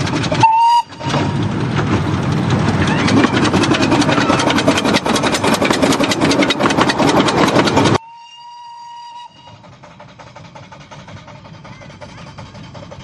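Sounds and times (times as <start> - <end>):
steam locomotive exhaust beats: 0.0 - 13.0
wheel-on-rail noise: 0.0 - 13.0
steam whistle blast: 0.4 - 1.2, 8.0 - 9.7.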